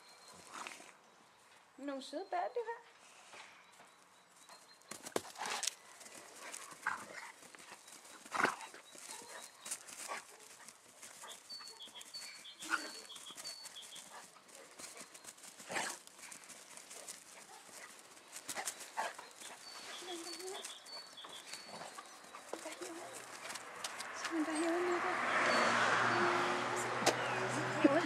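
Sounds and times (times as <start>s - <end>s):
dogs scuffling on grass: 4.2s - 25.0s.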